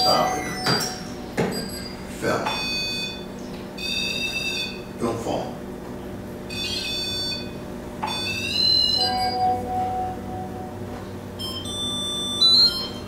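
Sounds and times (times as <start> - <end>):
low steady electronic note: 0.0 - 1.8, 8.2 - 13.0
high electronic beeping: 0.0 - 4.8.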